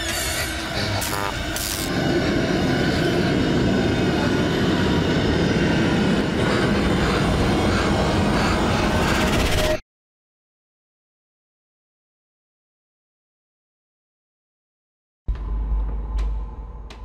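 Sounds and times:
rumbling rattling drone: 0:00.0 - 0:09.8.

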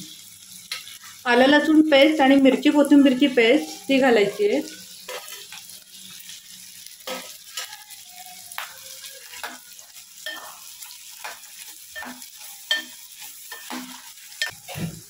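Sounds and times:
vegetables sizzling in oil: 0:00.0 - 0:15.0
spoon scraping pan: 0:03.6 - 0:06.3, 0:07.0 - 0:15.0.

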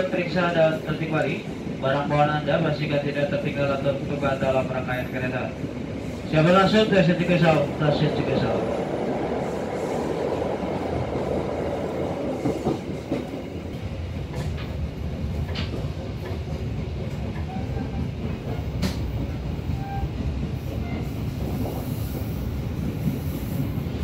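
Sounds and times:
train rumbling on rails: 0:00.0 - 0:24.0
train wheels clicking over track: 0:09.7 - 0:24.0.

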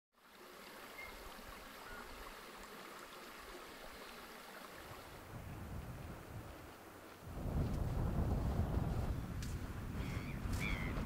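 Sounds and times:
wind rumble on microphone: 0:05.2 - 0:11.0.

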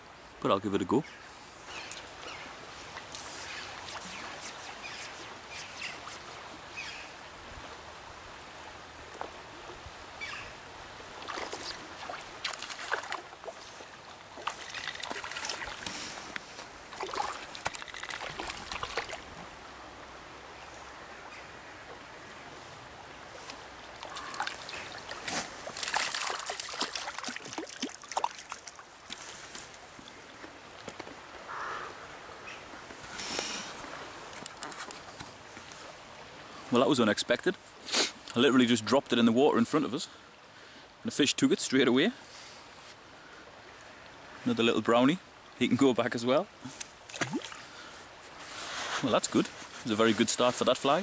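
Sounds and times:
river rushing over riffles: 0:01.3 - 0:38.9.

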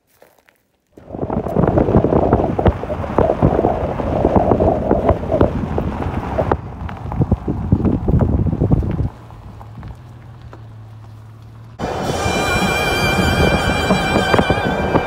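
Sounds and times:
wind buffeting microphone: 0:01.0 - 0:10.4, 0:11.8 - 0:15.0.

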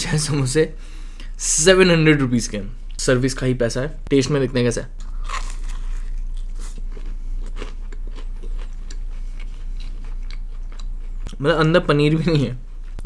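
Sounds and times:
crunchy pastry chewing: 0:05.0 - 0:11.4.

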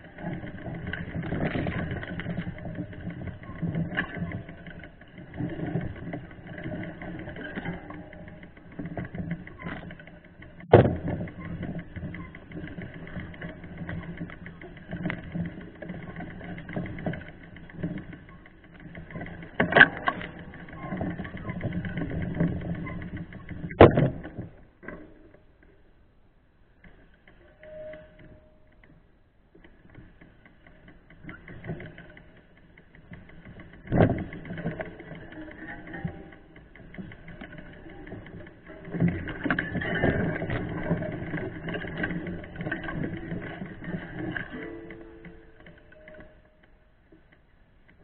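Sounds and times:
mountain bike rattling rumble: 0:00.0 - 0:25.9, 0:29.6 - 0:48.0
sharp knocks: 0:10.6 - 0:11.4
bike thumping over bump: 0:10.6 - 0:13.4.

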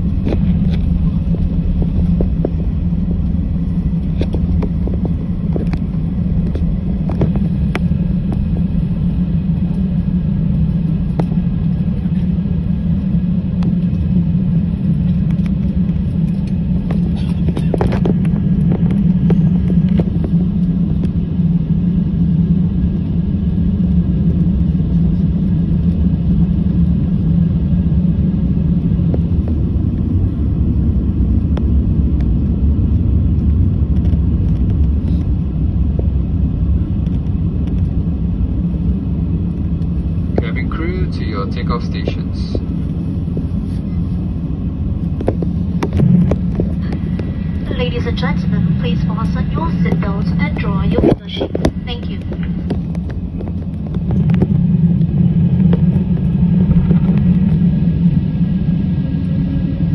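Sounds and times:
jet engine cabin drone: 0:00.0 - 0:59.9.

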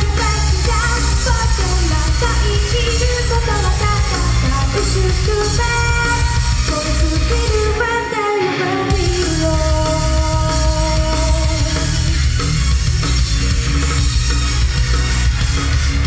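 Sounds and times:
woman singing pop song: 0:00.0 - 0:12.2
loud backing music: 0:00.0 - 0:16.0.

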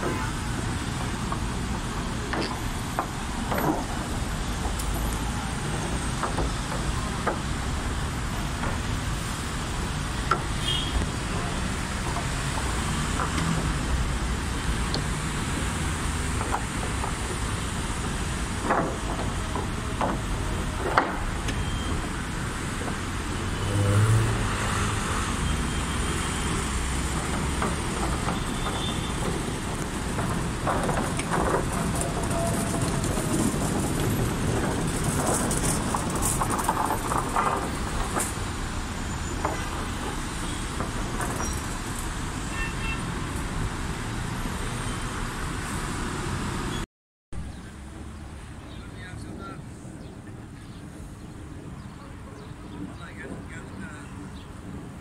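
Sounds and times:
dense city traffic: 0:00.0 - 0:55.0
car horn toots: 0:10.6 - 0:11.1, 0:42.5 - 0:43.0
clatters: 0:26.4 - 0:42.2.

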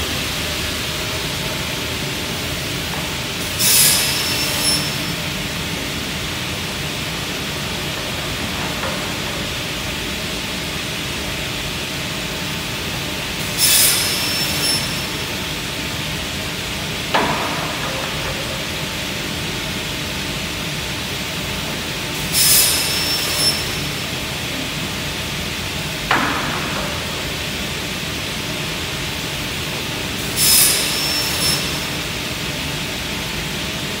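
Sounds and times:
saw cutting boards: 0:03.4 - 0:05.1, 0:13.4 - 0:15.2, 0:22.2 - 0:23.9, 0:30.2 - 0:32.0.

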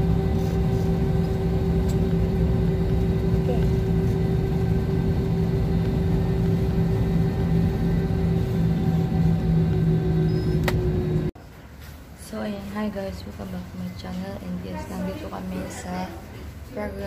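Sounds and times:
airliner cabin drone: 0:00.0 - 0:11.4.

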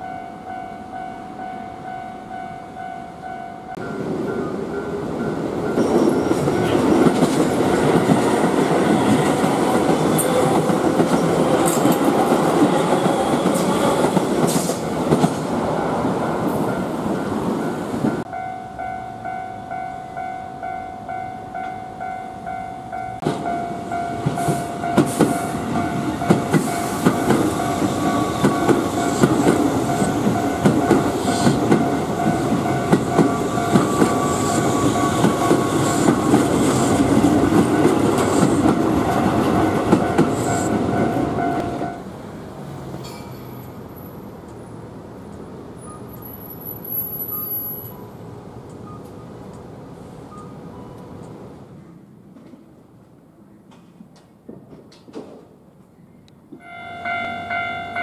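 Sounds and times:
level crossing warning bell ringing: 0:00.0 - 0:07.1, 0:16.2 - 0:38.0, 0:38.7 - 0:42.0, 0:56.6 - 0:58.0
train wheels clattering over rail joints: 0:05.7 - 0:15.6, 0:24.2 - 0:41.8, 0:53.7 - 0:55.6.

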